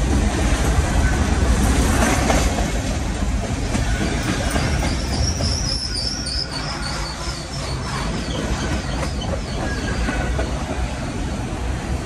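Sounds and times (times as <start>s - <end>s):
train wheels rumbling on rails: 0.0s - 12.0s
high wheel squeal: 3.8s - 10.5s.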